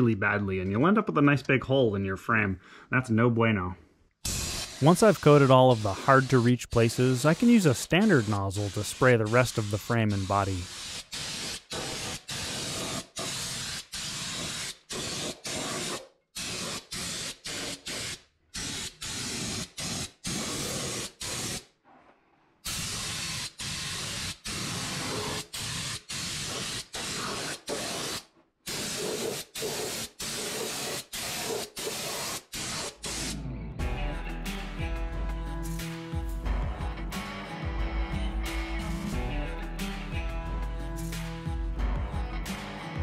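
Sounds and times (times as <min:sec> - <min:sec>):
spray gun hissing in bursts: 0:04.3 - 0:21.6, 0:22.7 - 0:33.3.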